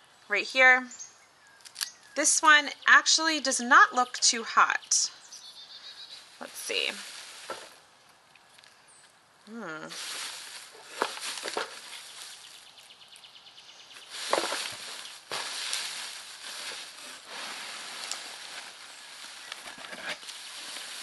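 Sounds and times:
hands rustling wood shavings: 6.4s - 7.8s, 9.8s - 13.3s, 13.9s - 21.0s.

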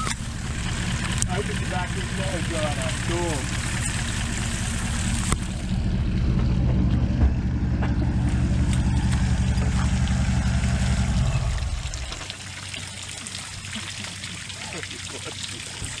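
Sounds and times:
vehicle engine revving under load: 0.0s - 12.4s.

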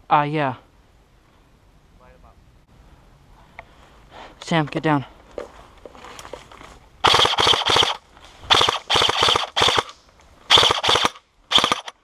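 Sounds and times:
airsoft rifle bursts: 7.0s - 12.0s.

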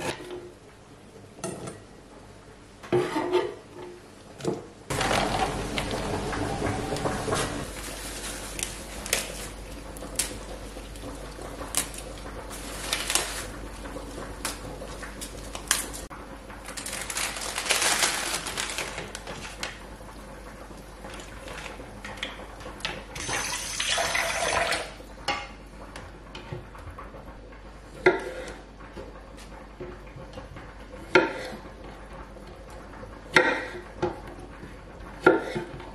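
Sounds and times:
plastic bag crinkling: 4.9s - 6.1s, 7.2s - 10.5s, 11.7s - 14.6s, 16.7s - 19.8s
lettuce leaves torn and rustling: 7.4s - 16.1s, 16.7s - 19.8s.

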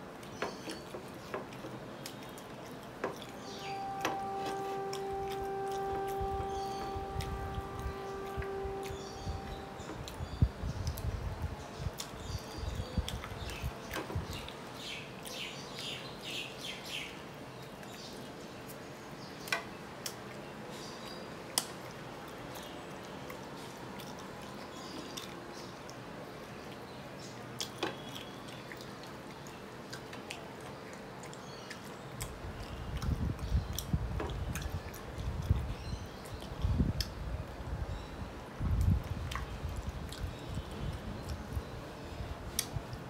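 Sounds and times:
faint bird chirps: 3.3s - 11.0s.

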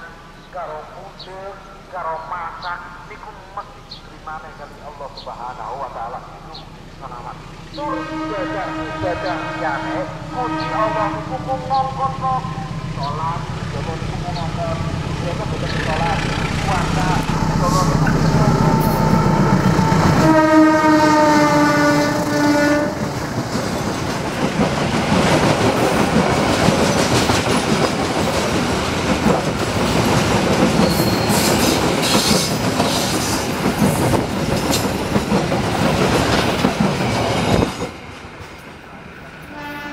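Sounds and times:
locomotive engine humming: 0.0s - 39.9s
train horn blast: 7.8s - 11.9s, 16.2s - 23.2s, 39.4s - 39.9s
train wheels clickety-clack: 22.9s - 38.8s
wheel squeals: 30.8s - 32.4s.

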